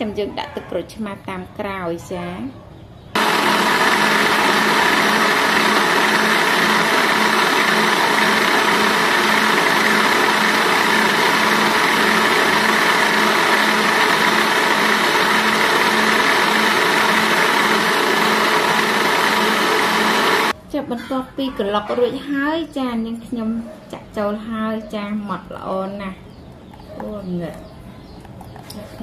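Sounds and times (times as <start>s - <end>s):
electric blender running: 3.2s - 20.6s.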